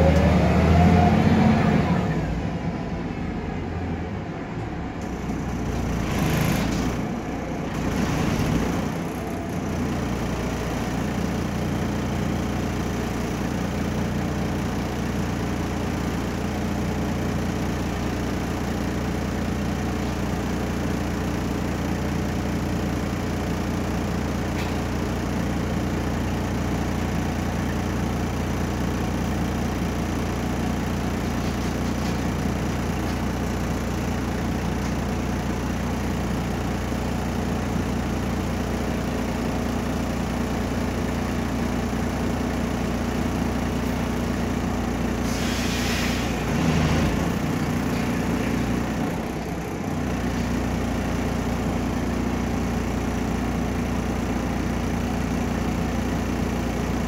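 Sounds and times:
bus diesel engine: 0.0s - 57.0s
air brake hissing: 45.2s - 46.4s.

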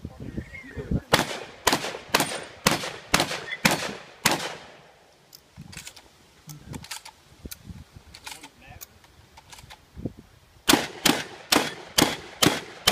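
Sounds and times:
gunshots: 1.1s - 4.8s, 10.7s - 12.9s
gun handling clicks and knocks: 5.1s - 9.9s.

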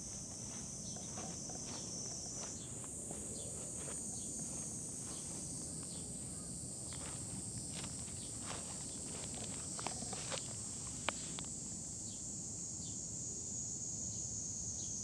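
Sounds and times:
paws rustling grass and leaves: 0.0s - 11.5s
insects chirring: 0.0s - 15.0s.

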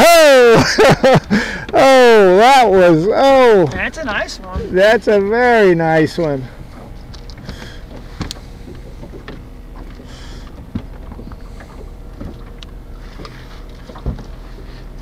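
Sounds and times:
steady low hum: 0.4s - 15.0s
light knocks and clicks: 6.8s - 14.4s.

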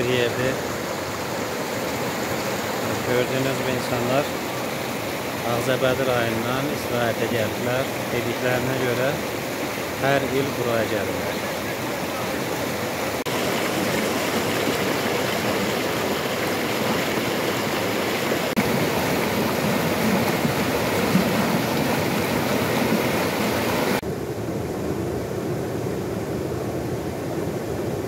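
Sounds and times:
river rushing over rocks: 0.0s - 24.0s.

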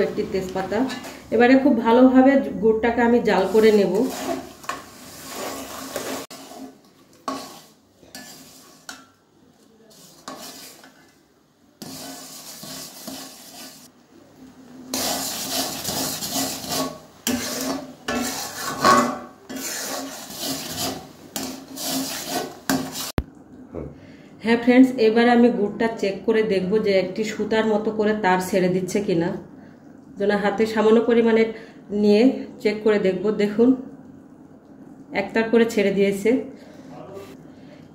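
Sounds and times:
metal spatula scraping a pan: 3.3s - 9.2s, 9.9s - 11.2s, 11.8s - 13.9s, 14.9s - 23.2s.

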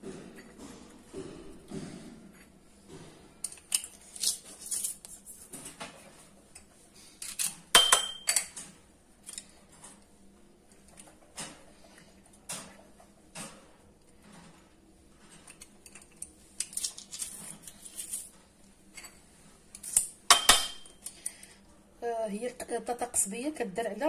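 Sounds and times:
utensils clinking against dishes: 6.5s - 9.5s, 18.9s - 21.5s.

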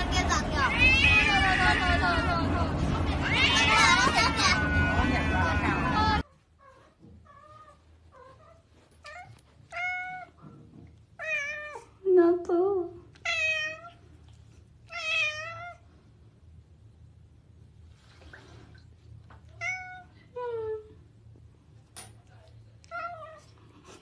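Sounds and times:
cat meowing: 0.6s - 2.2s, 6.6s - 10.4s, 11.2s - 11.9s, 13.2s - 14.0s, 14.9s - 15.8s.

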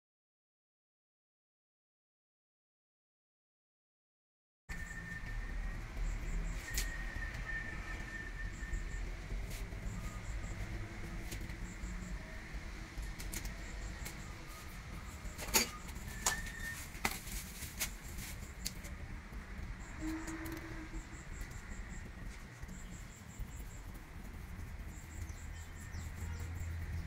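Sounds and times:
faint high chirping: 4.7s - 12.6s, 13.5s - 17.0s, 19.8s - 27.0s.

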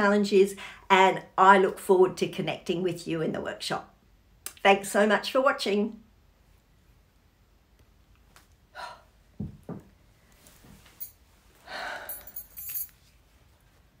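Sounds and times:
dull thumps: 9.4s - 10.0s.

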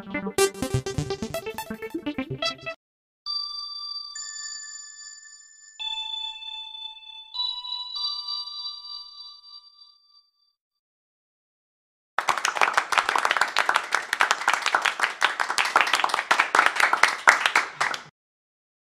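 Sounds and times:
group of people clapping: 12.2s - 18.1s.

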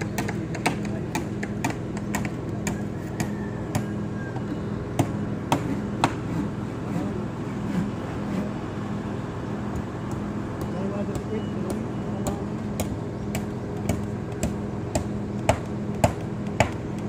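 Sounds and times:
sharp knocks and taps: 0.0s - 3.9s
construction machinery engine running: 0.0s - 17.0s.

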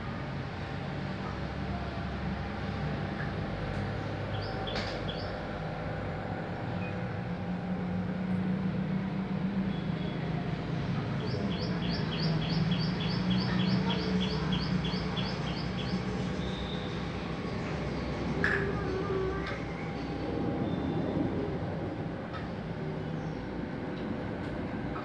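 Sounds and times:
low mechanical hum: 0.0s - 25.0s
bird chirping: 4.3s - 5.3s, 11.2s - 16.9s.

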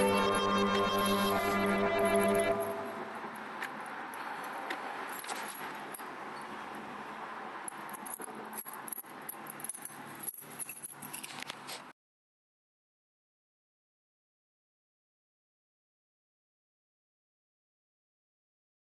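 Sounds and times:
keys jangling: 4.1s - 6.1s, 7.7s - 11.8s.

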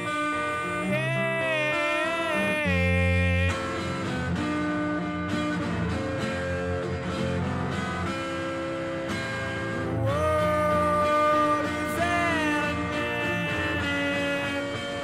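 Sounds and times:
plucked guitar notes: 0.0s - 15.0s.

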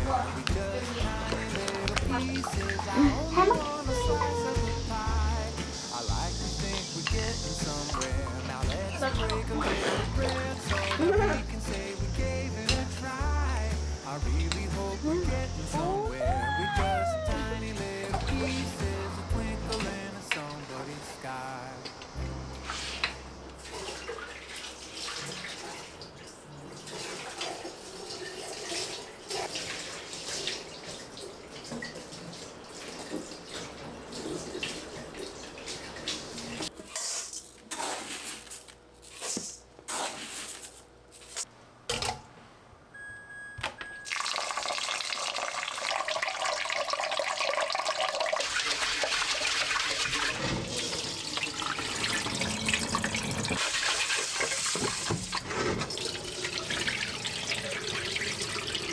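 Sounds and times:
tap water splashing in sink: 0.4s - 3.0s, 44.1s - 58.9s.

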